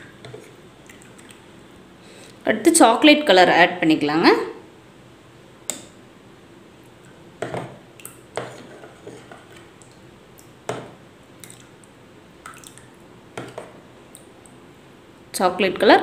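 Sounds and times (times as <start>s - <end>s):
spoon stirring liquid: 0.1s - 1.5s, 6.9s - 14.6s.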